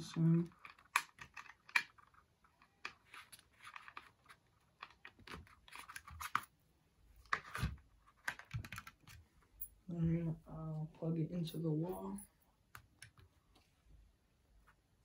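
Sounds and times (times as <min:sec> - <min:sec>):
plastic and wire clicks and scrapes: 0:00.0 - 0:06.6.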